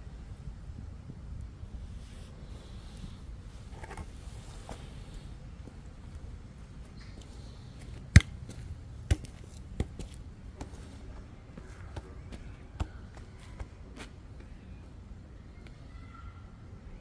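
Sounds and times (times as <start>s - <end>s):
basketball bouncing on dirt: 7.8s - 10.9s, 11.6s - 13.7s.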